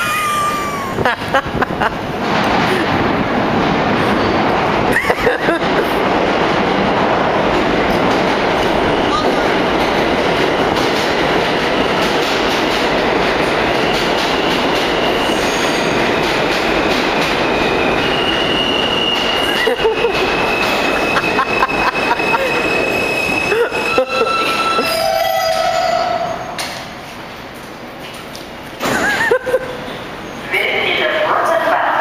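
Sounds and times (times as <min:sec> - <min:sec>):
subway train rumble: 0:00.0 - 0:32.0
train wheels squealing: 0:13.7 - 0:26.9.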